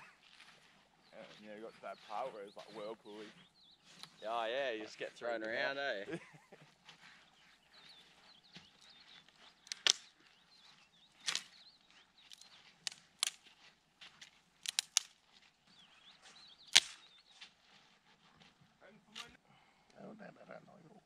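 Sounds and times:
dry branches snapping: 0:08.6 - 0:15.5, 0:16.6 - 0:17.5.

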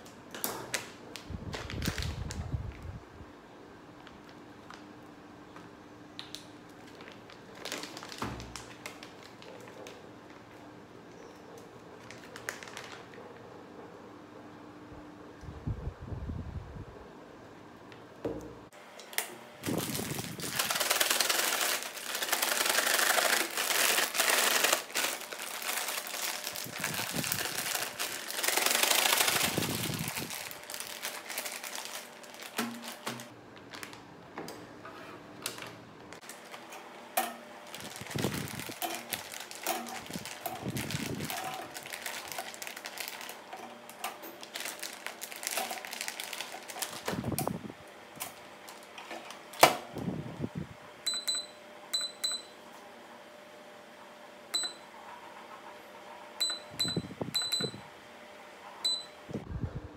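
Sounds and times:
plastic bag crinkling: 0:00.7 - 0:02.8, 0:06.7 - 0:10.6, 0:12.0 - 0:13.2, 0:19.6 - 0:34.1, 0:35.5 - 0:36.7, 0:37.6 - 0:47.6.

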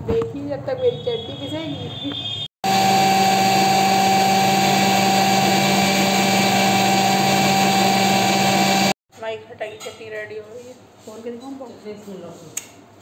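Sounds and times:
mixer grinder motor whine: 0:02.6 - 0:09.0.

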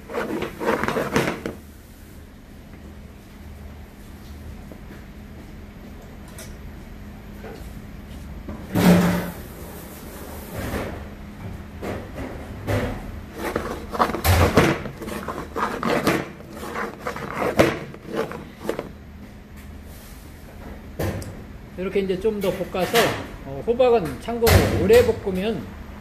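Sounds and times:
frying pan scraping and clanking: 0:13.3 - 0:18.9.

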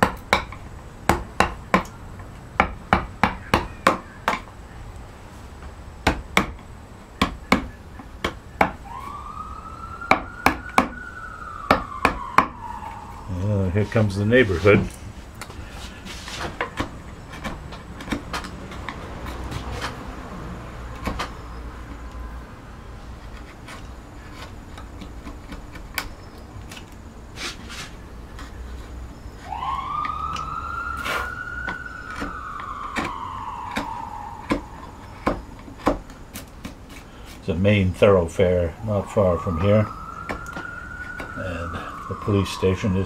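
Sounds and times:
emergency siren wailing: 0:08.6 - 0:15.1, 0:16.9 - 0:23.0, 0:29.2 - 0:36.3, 0:38.0 - 0:43.0
carving gouge clicks in wood: 0:20.9 - 0:21.3, 0:23.3 - 0:26.1.

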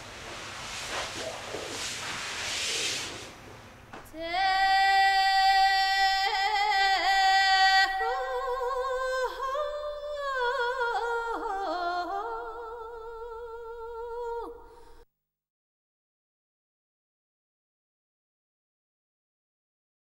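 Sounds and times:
person singing unaccompanied: 0:04.1 - 0:14.6.

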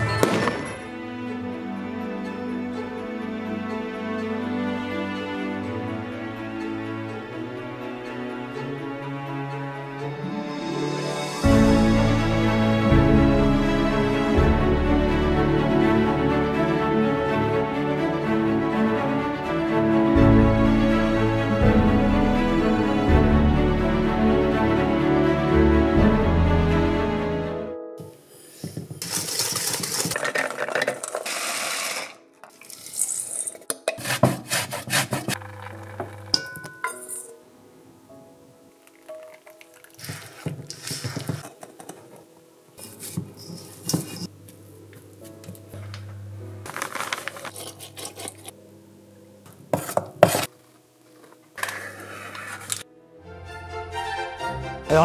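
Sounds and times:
utensil clinking against a bowl: 0:35.3 - 0:37.4
liquid pouring into metal pan: 0:38.8 - 0:40.7.

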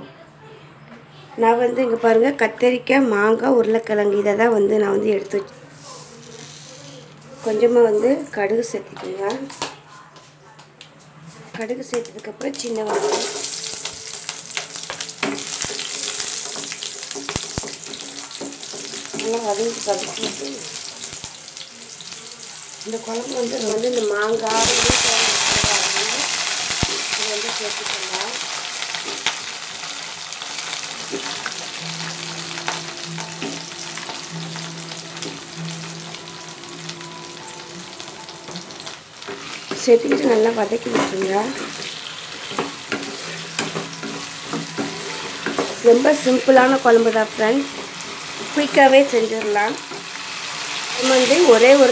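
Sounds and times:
shallots sizzling in oil: 0:11.9 - 0:51.9
crackling pops: 0:26.6 - 0:27.2.

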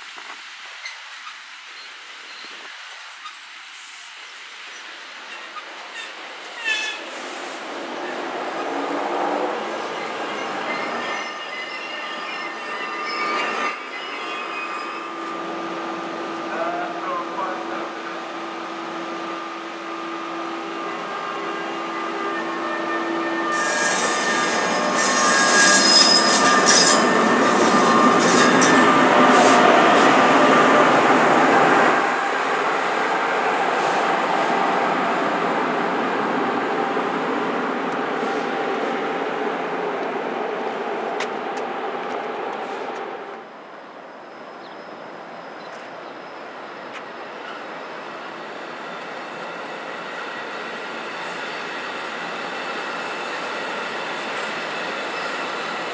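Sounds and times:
electric locomotive passing: 0:00.0 - 0:55.9
train coaches rolling on rails: 0:00.0 - 0:55.9
train wheels squealing: 0:04.7 - 0:08.3, 0:09.8 - 0:15.4, 0:20.8 - 0:30.6, 0:44.0 - 0:55.9.

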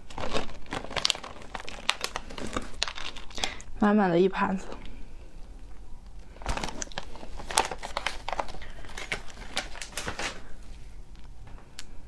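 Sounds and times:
plastic bag crinkling: 0:00.0 - 0:03.7, 0:06.0 - 0:10.7.

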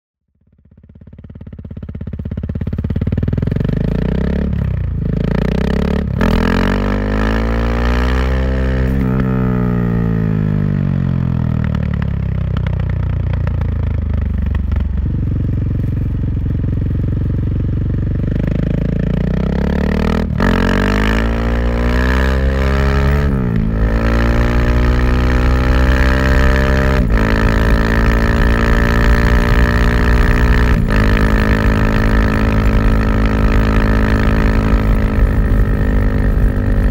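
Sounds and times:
motorcycle engine revving: 0:00.4 - 0:36.9.

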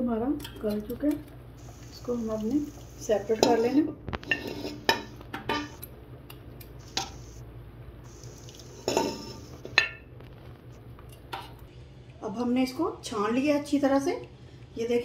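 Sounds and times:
low steady hum: 0:00.0 - 0:15.0
metal tongs clinking on pot: 0:00.4 - 0:01.2, 0:03.3 - 0:07.2, 0:08.8 - 0:10.0.

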